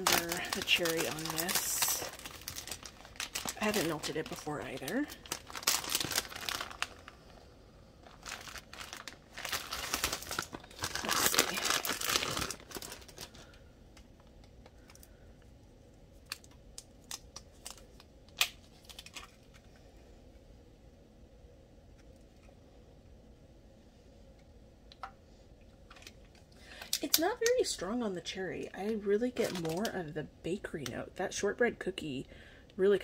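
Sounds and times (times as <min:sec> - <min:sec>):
plastic wrapping crinkling: 0:00.0 - 0:15.2, 0:16.2 - 0:19.7, 0:28.7 - 0:30.2.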